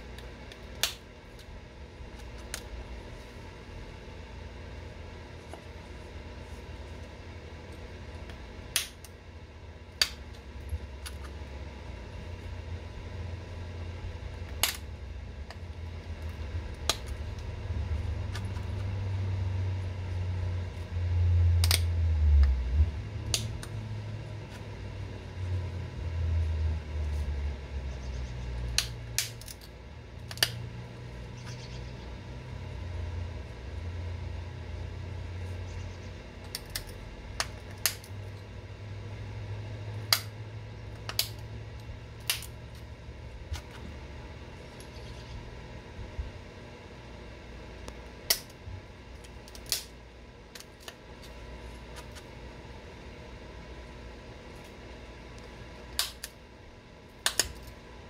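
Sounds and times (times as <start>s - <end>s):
low uneven rumble: 9.4s - 49.3s
stone flake clicking off: 57.2s - 57.7s.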